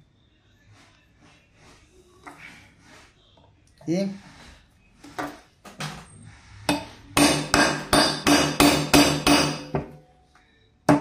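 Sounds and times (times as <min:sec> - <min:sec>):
hammer striking metal setter: 0:06.7 - 0:09.9.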